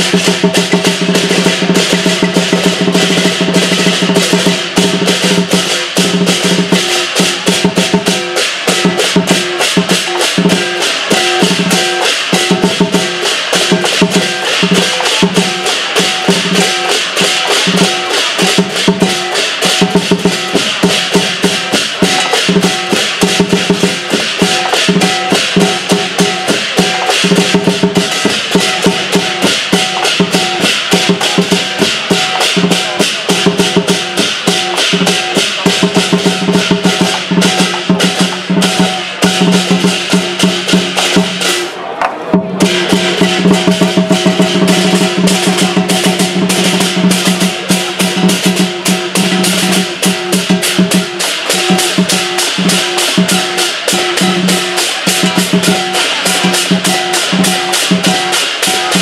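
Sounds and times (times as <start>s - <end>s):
clashing cymbals: 0.0s - 59.0s
large drum beaten fast: 0.0s - 59.0s.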